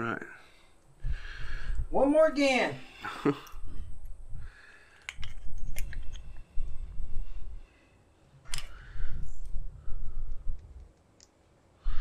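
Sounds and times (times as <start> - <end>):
small metal clicks and clinks: 5.0 - 6.4
low rumble: 5.2 - 7.8, 8.5 - 10.9.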